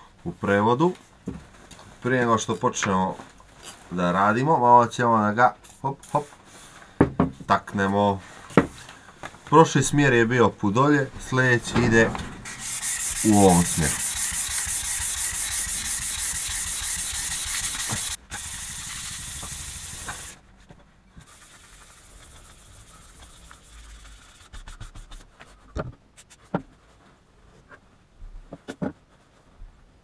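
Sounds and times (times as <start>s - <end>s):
sandpaper rubbing on metal: 12.4s - 20.4s, 21.2s - 25.3s.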